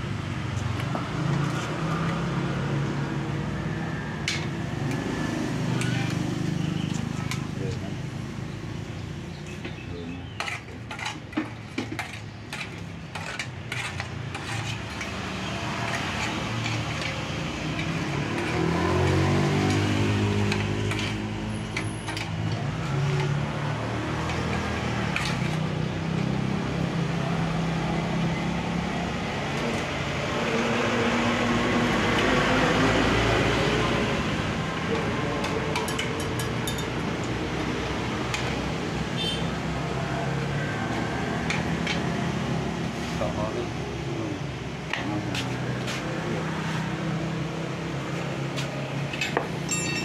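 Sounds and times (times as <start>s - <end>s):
metal rod clinking against pot: 35.8s - 37.0s, 49.2s - 50.0s.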